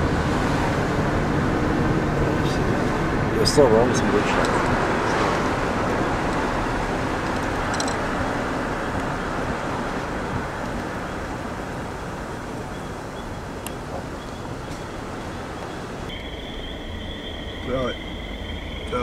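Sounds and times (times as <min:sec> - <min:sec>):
car road and engine noise: 0:00.0 - 0:19.0.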